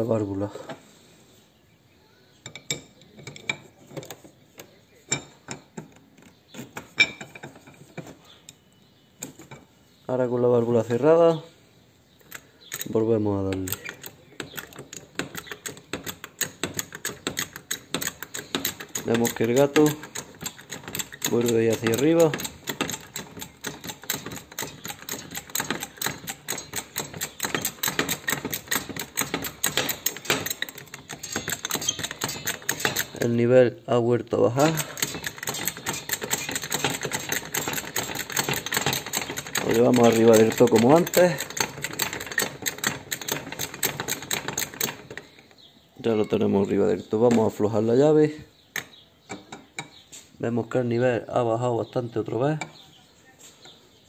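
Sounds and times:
metallic clicks of jack handle: 12.2 - 33.3.

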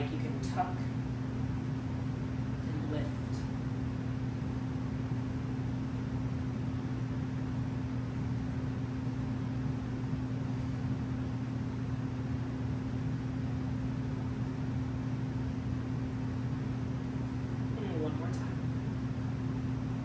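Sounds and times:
machine humming: 0.0 - 20.0.

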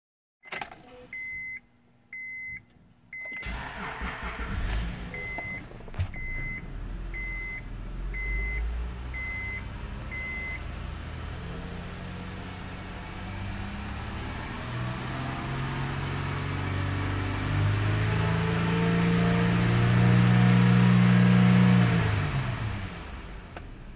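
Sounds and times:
dashboard warning chime beeping: 0.4 - 10.7
car engine starting and idling: 2.6 - 23.9.

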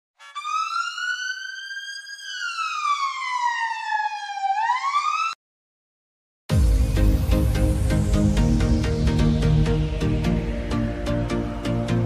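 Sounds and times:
electronic siren wail: 0.2 - 5.4.

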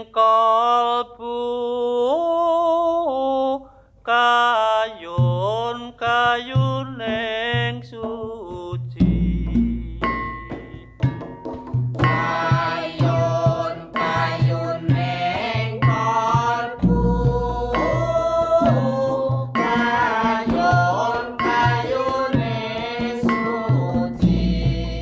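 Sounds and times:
steady drum beat: 5.2 - 25.0
person singing chant-like melody: 12.1 - 25.0.

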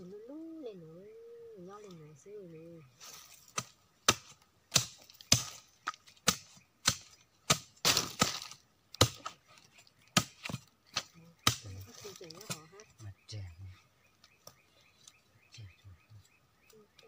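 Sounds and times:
machete chopping into wood: 3.5 - 9.4, 10.2 - 11.8
wood crunching and tearing: 7.6 - 12.7.

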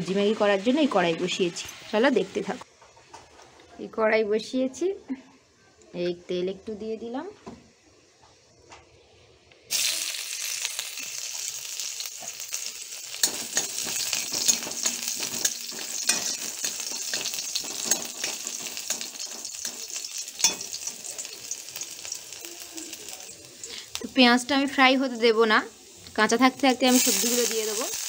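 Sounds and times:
onion sizzling in hot oil: 0.0 - 2.7, 9.7 - 28.0
spatula scraping and tapping pan: 13.2 - 21.1.

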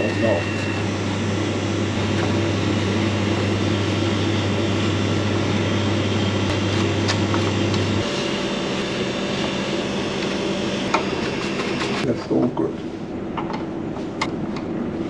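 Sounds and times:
ventilation machinery hum: 0.0 - 15.0.

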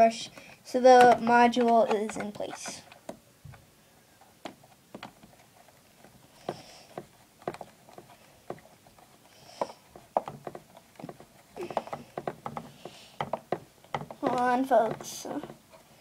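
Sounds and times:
screwdriver clicking on screws: 0.9 - 3.1.

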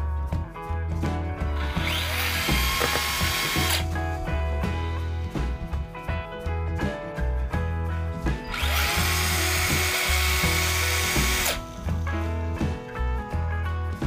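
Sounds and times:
background music with steady beat: 0.0 - 14.0
electric motor whining: 1.6 - 3.9, 8.5 - 11.7.

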